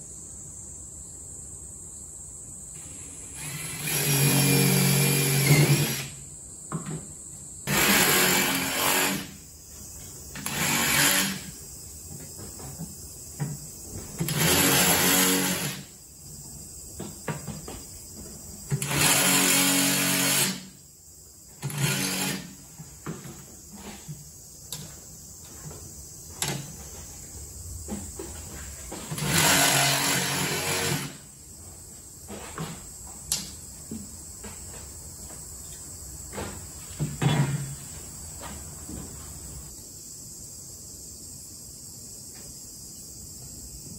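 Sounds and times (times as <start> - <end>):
power tool running: 2.8 - 6.2, 7.7 - 9.4, 10.4 - 11.6, 14.2 - 15.9, 18.7 - 20.7, 21.6 - 22.6, 29.0 - 31.3.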